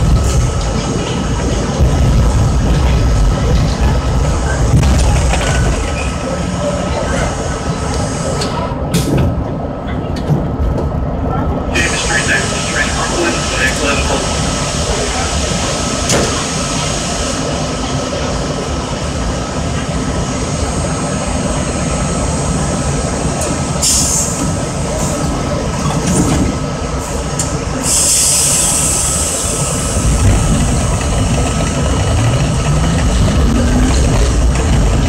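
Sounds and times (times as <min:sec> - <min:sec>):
subway train rumble: 0:00.0 - 0:35.0
compressed air hissing: 0:23.8 - 0:24.4, 0:27.8 - 0:30.5.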